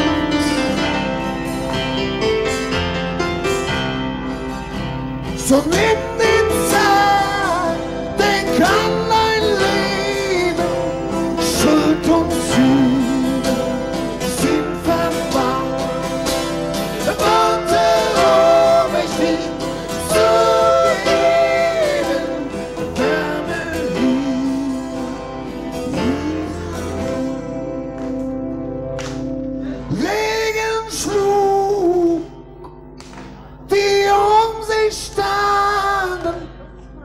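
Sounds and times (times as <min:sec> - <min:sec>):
guitar accompaniment: 0:00.0 - 0:37.0
man singing: 0:05.3 - 0:25.2, 0:25.8 - 0:27.8, 0:29.8 - 0:32.5, 0:33.6 - 0:36.6.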